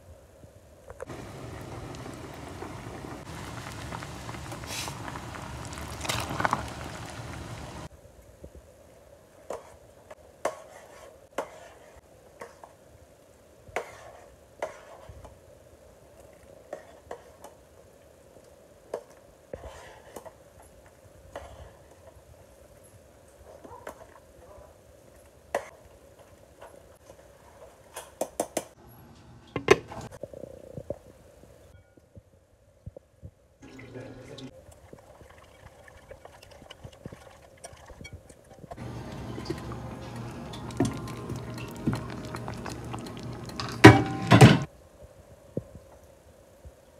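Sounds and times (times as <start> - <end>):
faint background noise: 0.0 - 46.9
water poured into bowl: 33.6 - 38.1, 39.0 - 43.9
slurry being stirred: 34.6 - 44.3.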